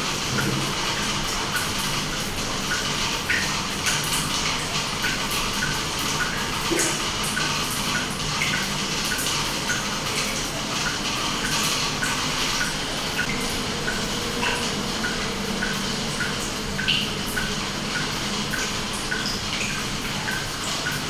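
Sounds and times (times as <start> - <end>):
water drop plinking: 13.2 - 21.0.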